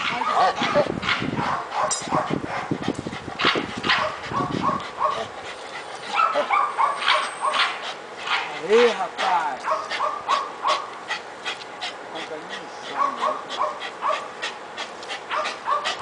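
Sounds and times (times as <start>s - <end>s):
dog whining and yipping: 4.0s - 7.7s.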